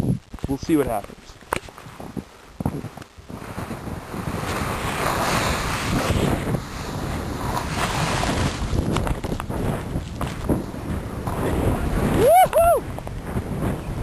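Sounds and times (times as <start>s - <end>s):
snowboard sliding through powder: 0.0s - 14.0s
wind noise on microphone: 0.0s - 14.0s.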